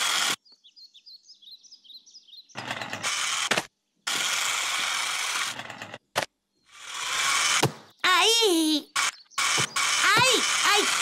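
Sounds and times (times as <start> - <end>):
toy car motor buzzing: 0.0 - 0.4, 2.6 - 6.0, 6.7 - 7.7, 8.8 - 11.0
soft bird chirps: 0.4 - 2.6, 7.8 - 10.5.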